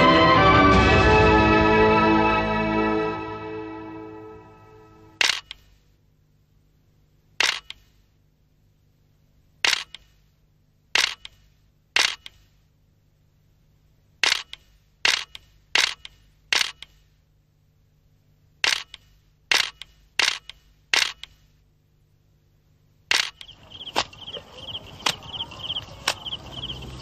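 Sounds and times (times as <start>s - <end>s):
camera shutter clicks: 5.2s - 5.7s, 7.4s - 7.9s, 9.6s - 10.1s, 11.0s - 11.4s, 12.0s - 12.4s, 14.2s - 17.0s, 18.6s - 21.4s, 23.1s - 23.5s
sharp ticks: 7.4s - 7.8s, 18.6s - 21.4s, 23.1s - 27.0s
insects chirping in pulses: 23.1s - 27.0s.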